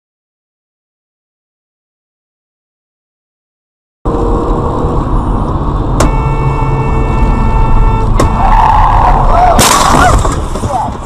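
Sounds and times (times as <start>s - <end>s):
car road and engine rumble: 4.1s - 11.0s.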